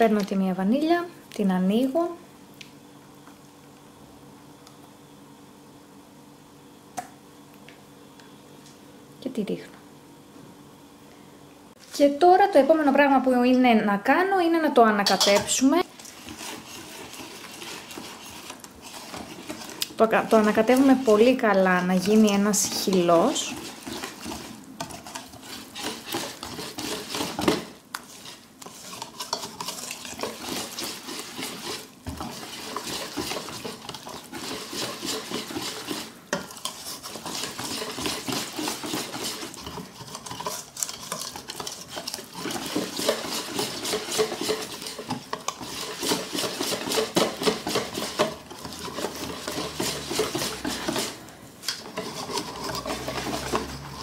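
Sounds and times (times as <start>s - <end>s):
whisk beating batter in metal bowl: 15.0s - 54.0s.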